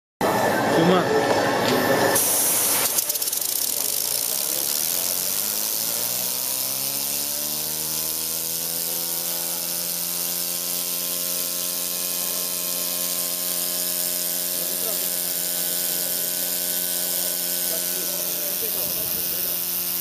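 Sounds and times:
compressed air hissing: 2.2s - 20.0s
small engine hum rising in pitch: 5.0s - 17.6s.

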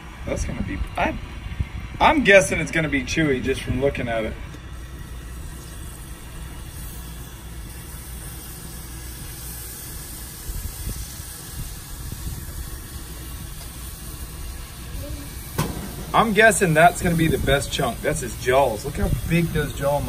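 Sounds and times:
gas grill rumbling and hissing: 0.0s - 20.0s.

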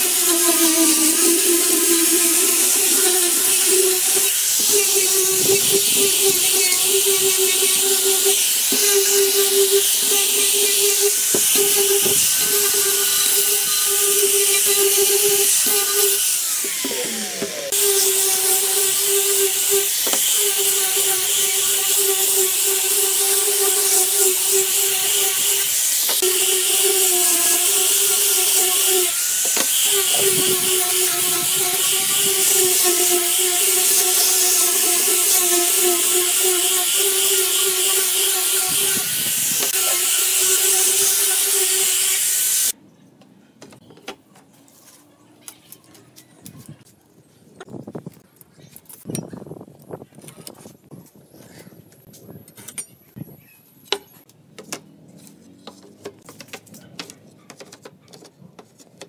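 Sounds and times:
angle grinder sanding wood: 0.0s - 42.8s.

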